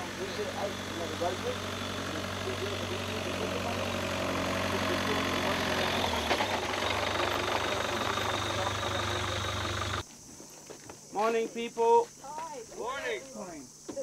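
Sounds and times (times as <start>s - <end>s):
minibus engine idling: 0.0s - 10.0s.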